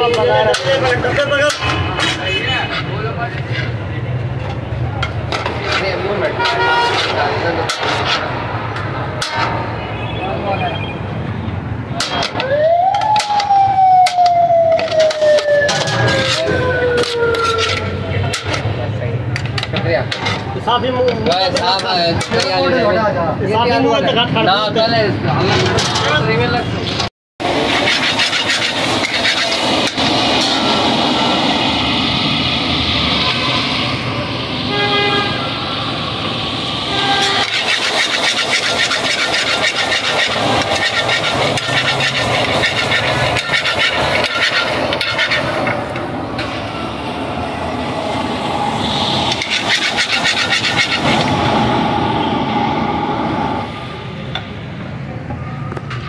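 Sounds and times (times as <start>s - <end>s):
metal ladle scraping a pan: 0.0s - 8.5s, 9.2s - 9.6s, 14.8s - 18.7s, 26.9s - 30.6s, 36.9s - 45.8s, 48.8s - 51.3s
food frying: 27.4s - 30.8s, 37.4s - 45.3s
gas burner flame rushing: 27.4s - 54.6s.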